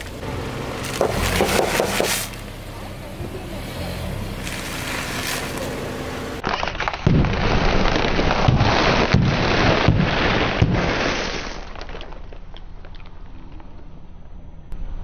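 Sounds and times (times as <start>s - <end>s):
car tyre rolling on asphalt: 0.0s - 6.6s.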